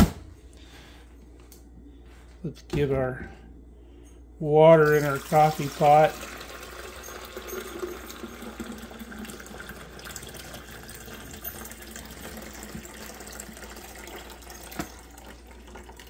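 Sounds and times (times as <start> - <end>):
water pouring into reservoir: 4.8 - 16.0.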